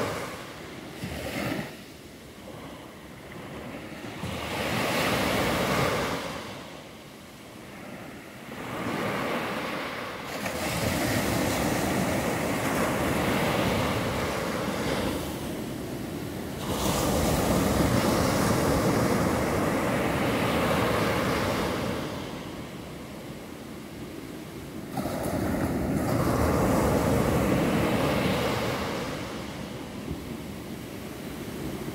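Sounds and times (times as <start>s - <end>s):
waves breaking on sandy beach: 0.0s - 31.9s.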